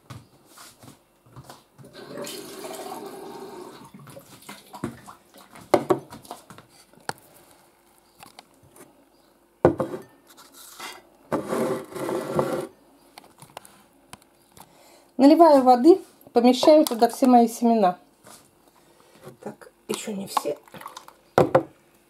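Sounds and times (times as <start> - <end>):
glassware knocking and clinking: 9.7 - 10.1.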